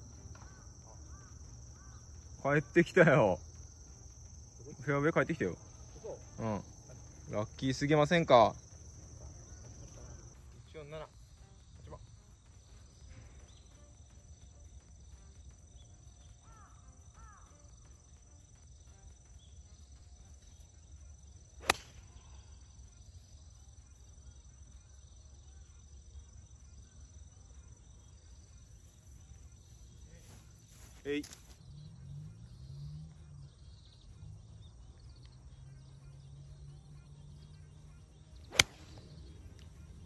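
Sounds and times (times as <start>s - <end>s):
outdoor background noise: 0.0s - 40.0s
golf club striking ball: 21.6s - 22.1s, 38.5s - 39.3s.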